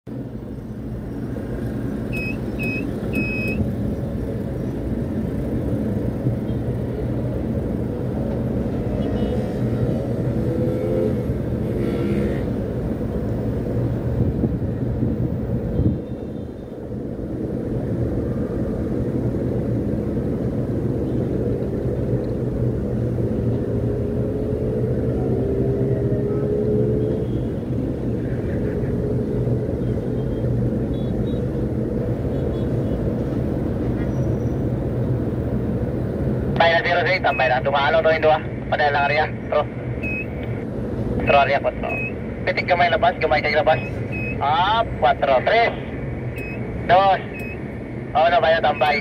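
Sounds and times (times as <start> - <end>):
rising whine of drives: 38.7 - 49.0
short high beeps: 40.0 - 40.4, 41.9 - 42.2, 43.7 - 44.4, 46.4 - 46.6, 47.3 - 47.6.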